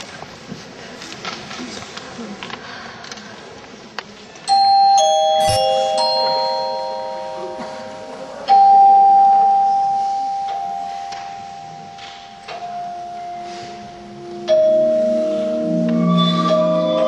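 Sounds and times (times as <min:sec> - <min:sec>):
bell-like chime notes: 0:04.5 - 0:12.0.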